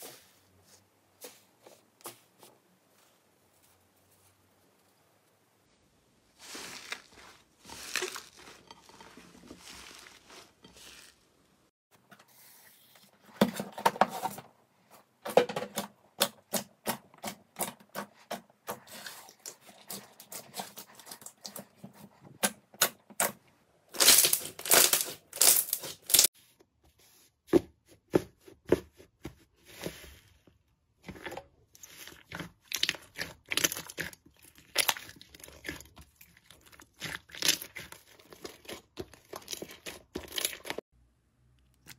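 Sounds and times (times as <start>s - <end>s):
slime popping and crackling: 24.0s - 26.3s.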